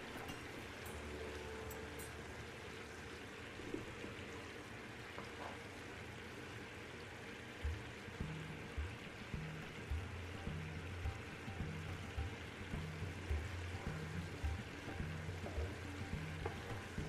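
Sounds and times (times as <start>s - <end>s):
syrup boiling in a pan: 0.0s - 17.0s.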